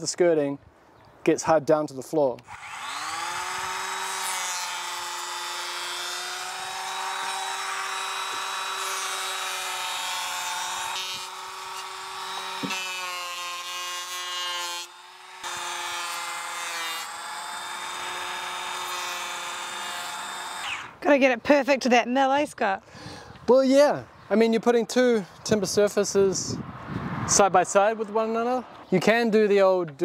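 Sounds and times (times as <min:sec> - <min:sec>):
electric hand planer whining: 0:02.5 - 0:20.9.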